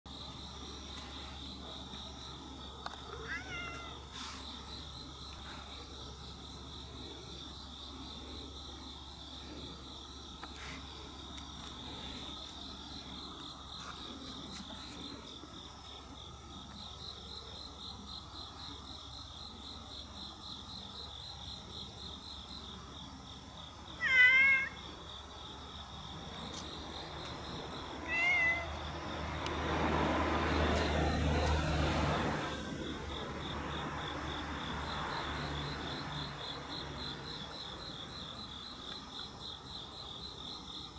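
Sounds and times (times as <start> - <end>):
night insects chirring: 0.1 - 40.9
cat meowing: 3.1 - 4.0, 24.0 - 24.8, 28.0 - 28.8.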